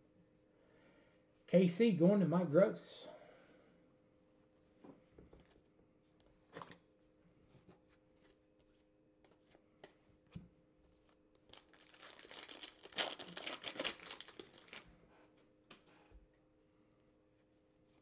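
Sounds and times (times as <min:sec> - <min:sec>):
foil wrapper tearing: 0:11.4 - 0:14.9.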